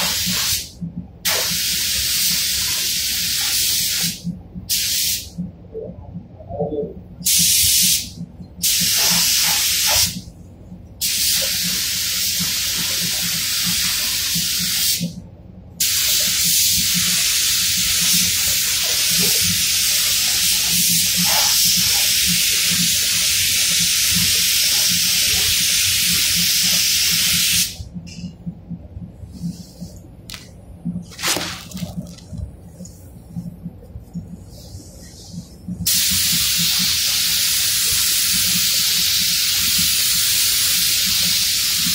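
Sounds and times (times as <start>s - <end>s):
paint spray gun hissing: 15.8s - 27.8s, 35.9s - 41.9s
faint low hum: 27.8s - 35.9s.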